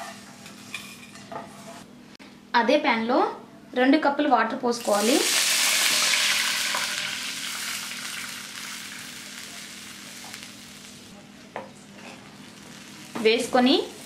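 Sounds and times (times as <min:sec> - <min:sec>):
water hissing in hot pan: 0:04.9 - 0:11.1.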